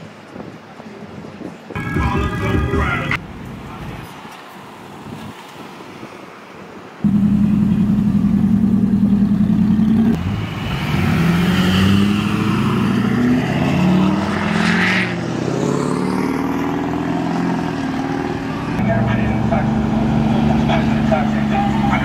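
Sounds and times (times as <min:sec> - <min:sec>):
pickup truck engines passing: 0:01.8 - 0:22.0
steady pulsing drone: 0:07.0 - 0:10.0
engine revving: 0:07.0 - 0:22.0.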